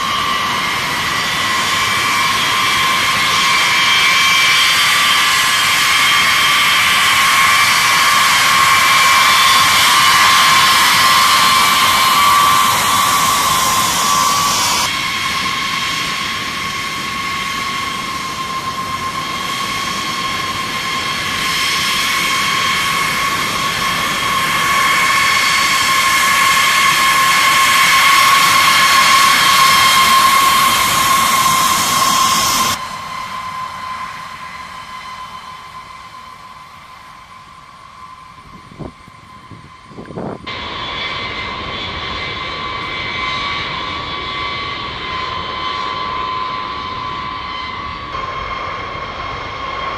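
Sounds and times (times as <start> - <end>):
jet engines whining: 0.0 - 49.9.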